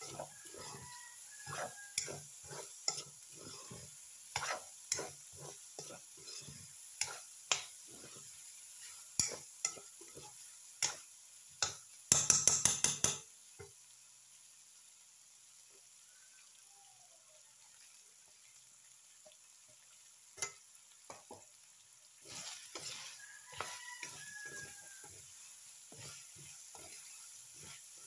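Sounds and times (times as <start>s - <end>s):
spatula scraping a wok: 0.0s - 13.2s, 22.2s - 28.0s
pork sizzling: 0.0s - 28.0s
metal clacks against pan: 11.6s - 13.3s.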